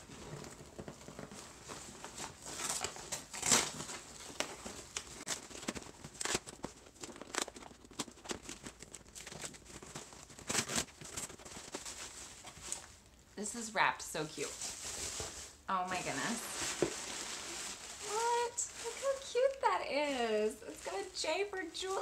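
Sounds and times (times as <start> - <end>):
packaging crinkling and tearing: 0.0 - 13.1, 14.4 - 22.0.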